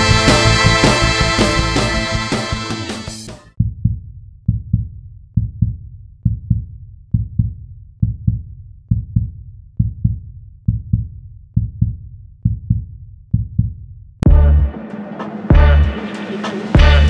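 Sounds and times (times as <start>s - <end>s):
heartbeat thumps: 3.6s - 14.7s.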